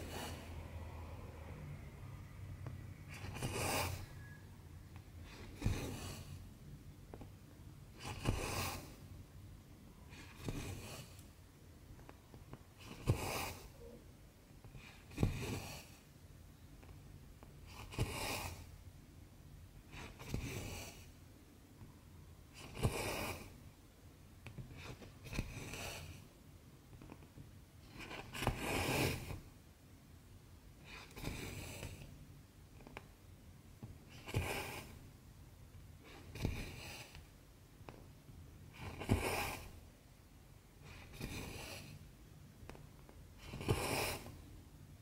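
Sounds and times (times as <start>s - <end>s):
thread swishing through fabric: 3.0s - 4.4s.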